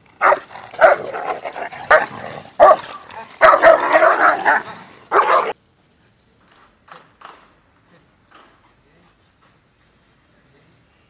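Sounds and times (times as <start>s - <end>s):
large dog barking: 0.2s - 5.6s.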